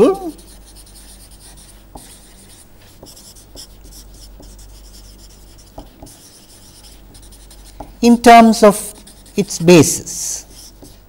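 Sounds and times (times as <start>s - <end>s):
low steady hum: 0.0s - 11.0s
marker scratching on paper: 0.0s - 11.0s.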